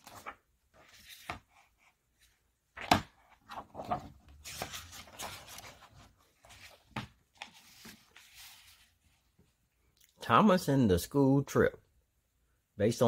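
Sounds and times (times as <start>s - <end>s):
book pages rustling: 0.0s - 9.6s.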